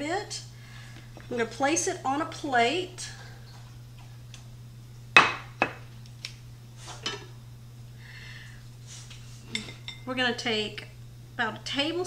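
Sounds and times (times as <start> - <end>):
low steady hum: 0.0 - 12.0
plate set down on cutting board: 5.2 - 5.8.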